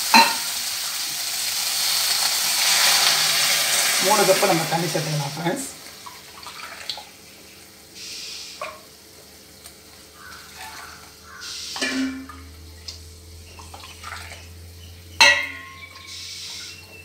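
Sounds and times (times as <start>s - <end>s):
water pouring into a steel pan: 0.0s - 7.0s.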